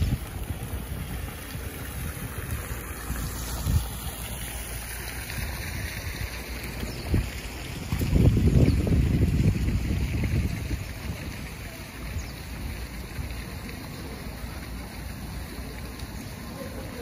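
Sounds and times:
wind rumble on microphone: 0.0 - 4.4, 5.1 - 13.5
fountain water splashing: 0.0 - 17.0.

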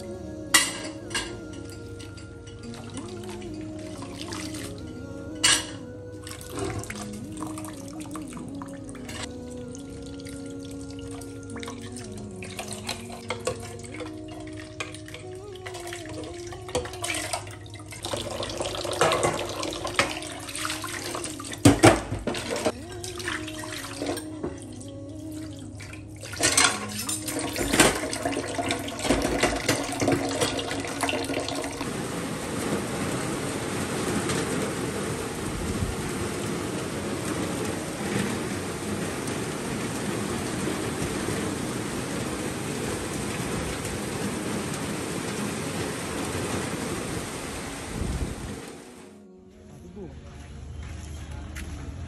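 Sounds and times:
heavy rain: 0.0 - 49.2
pot and cutlery clinking: 0.5 - 5.9, 12.5 - 24.6, 26.4 - 31.7
tap water running and splashing: 0.6 - 32.0.

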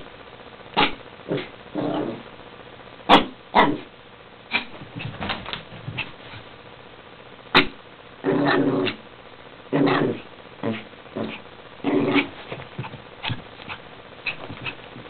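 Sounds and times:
small dog barking: 0.8 - 1.5, 3.1 - 3.9, 7.5 - 7.8.

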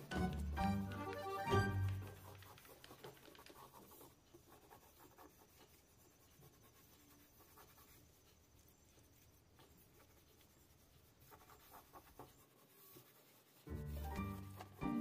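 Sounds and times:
background music: 0.0 - 2.3, 13.7 - 15.0
gloved hands rubbing dough: 0.0 - 15.0.

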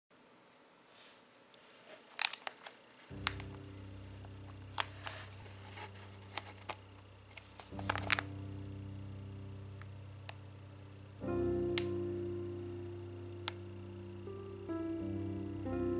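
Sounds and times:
plastic packaging crinkling: 1.7 - 3.6, 4.4 - 8.3
quiet background music: 3.0 - 15.9.

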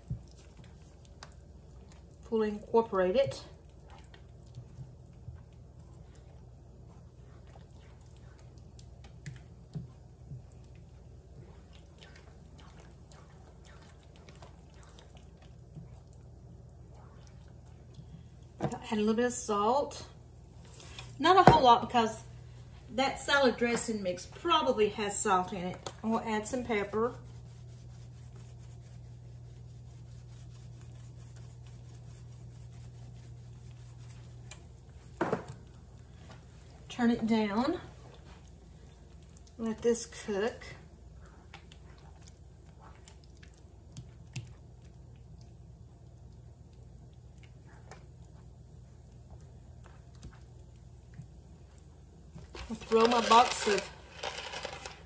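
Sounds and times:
spatula stirring thick mixture: 0.0 - 55.0
steady low hum: 0.0 - 55.0
pepper shaken from a tin: 52.6 - 55.0
spatula scraping skillet: 52.6 - 55.0.

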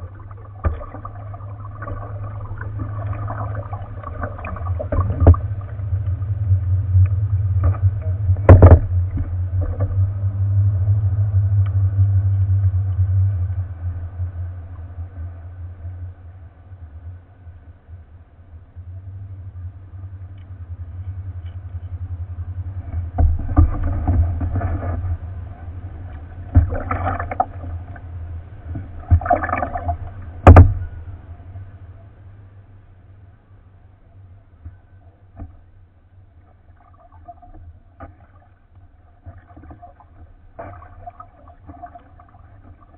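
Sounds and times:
paddle strokes splashing: 0.0 - 6.2, 23.1 - 30.8, 36.4 - 42.9
steady low rumble: 0.0 - 42.9.

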